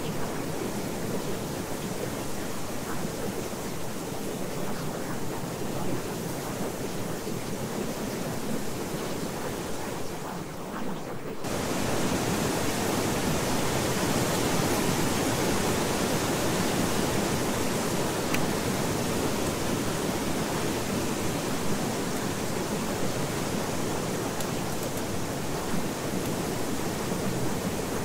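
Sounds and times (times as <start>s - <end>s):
steady rushing noise: 0.0s - 28.0s.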